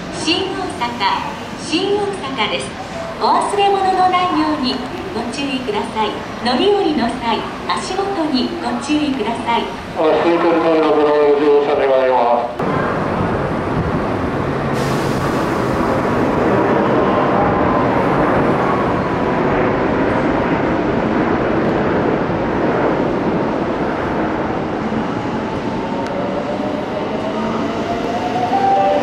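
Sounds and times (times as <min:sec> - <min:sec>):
train wheels on rails: 0:12.6 - 0:29.0.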